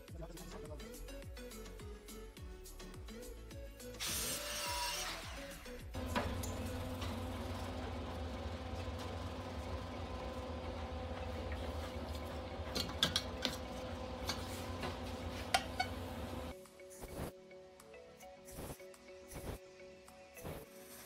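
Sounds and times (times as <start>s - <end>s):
low electrical hum: 6.0s - 16.5s.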